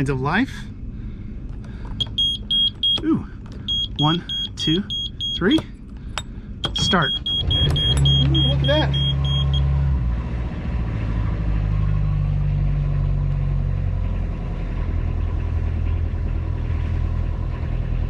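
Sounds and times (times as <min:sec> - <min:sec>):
diesel engine idling: 0:00.0 - 0:10.8.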